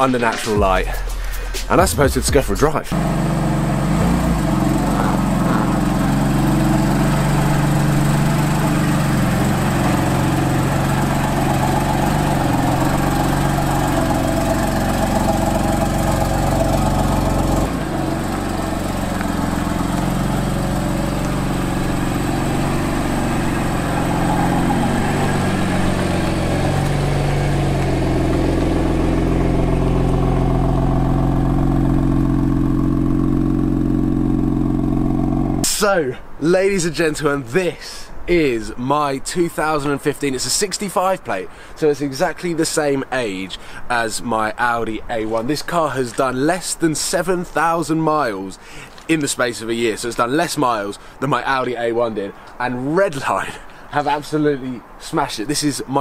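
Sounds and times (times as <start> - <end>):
car engine at low revs: 1.8 - 35.7.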